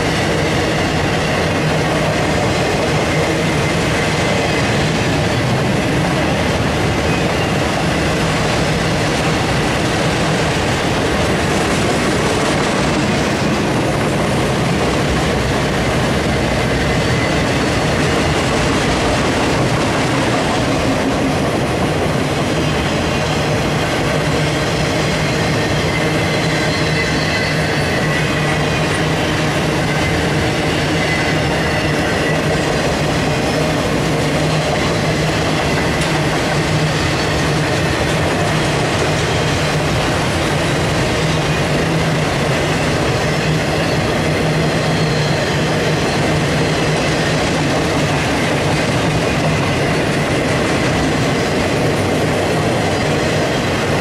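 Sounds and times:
freight train wheels rumbling on rails: 0.0s - 54.0s.

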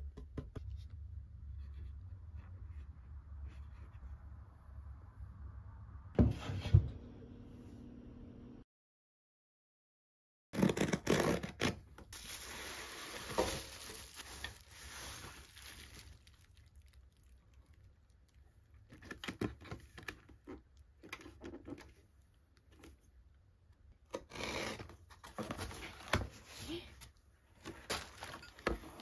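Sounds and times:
box cutter slitting tape and cardboard: 10.6s - 14.5s
plastic wrap rustling: 12.1s - 19.2s, 27.6s - 29.0s.

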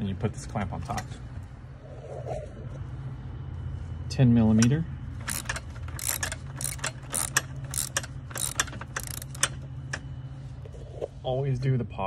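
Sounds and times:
socket ratchet clicking: 5.2s - 9.6s.

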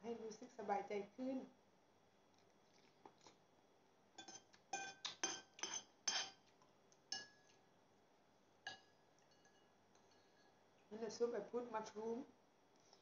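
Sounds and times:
cutlery clinking and scraping on plate: 4.2s - 6.5s.

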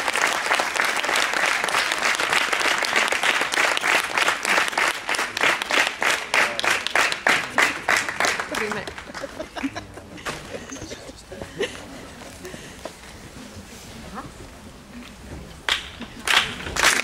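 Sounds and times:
audience applauding: 0.0s - 10.8s, 15.7s - 17.0s.

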